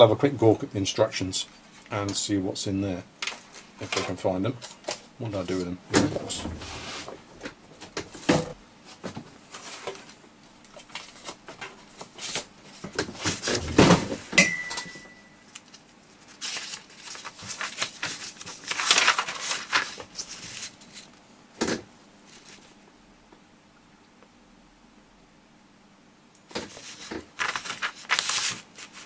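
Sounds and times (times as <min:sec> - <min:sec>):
short ringing ping: 0:14.4 - 0:15.4
paper booklet rustling: 0:15.5 - 0:21.2, 0:22.3 - 0:22.8, 0:26.5 - 0:29.0.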